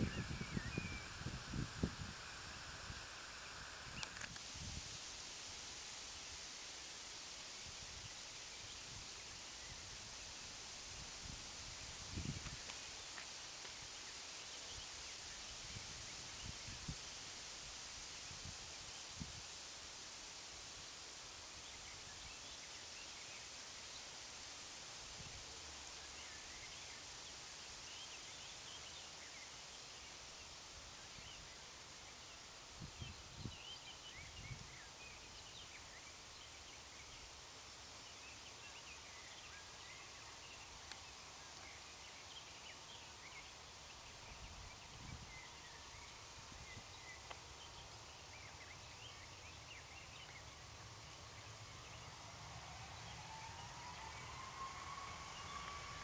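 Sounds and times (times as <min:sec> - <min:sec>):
distant jet engine whine: 0:51.4 - 0:56.0.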